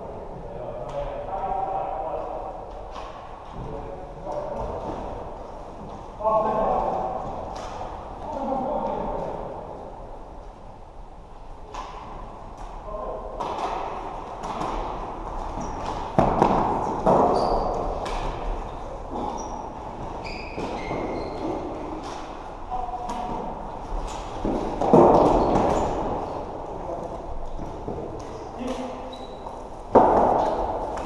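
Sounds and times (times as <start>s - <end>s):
sneakers squeaking: 15.4s - 22.2s, 24.8s - 26.5s, 27.5s - 31.0s
knocks against rink boards: 15.6s - 18.4s, 24.1s - 26.2s, 29.9s - 31.0s.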